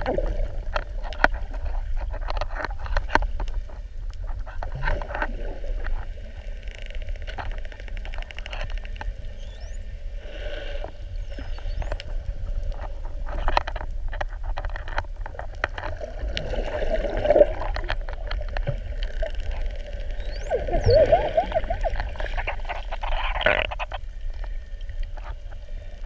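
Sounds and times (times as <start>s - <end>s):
dolphin whistles: 9.4s - 9.8s, 20.2s - 22.0s
low underwater rumble: 11.0s - 25.9s
squeaky croaking dolphin calls: 20.1s - 23.2s
dolphin buzzy call: 20.2s - 22.3s.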